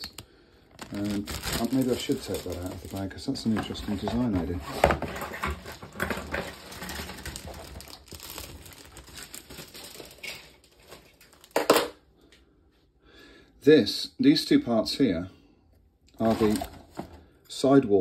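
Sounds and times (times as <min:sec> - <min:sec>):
plastic bag crinkling and rustling: 0:00.0 - 0:11.9, 0:16.2 - 0:17.2.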